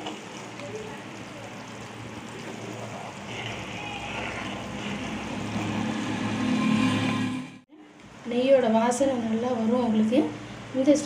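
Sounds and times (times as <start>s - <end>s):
bubbling sizzle of butter: 0.0s - 6.4s.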